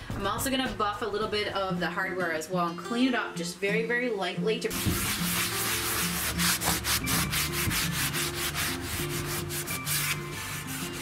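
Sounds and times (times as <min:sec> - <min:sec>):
cloth rubbing on wooden door: 0:04.7 - 0:11.0.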